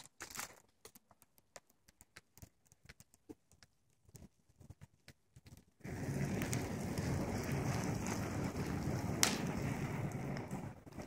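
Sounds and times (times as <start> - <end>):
bonfire crackling: 0.0 - 11.0
flames rushing: 5.5 - 11.0
sharp snaps of fire: 5.5 - 11.0.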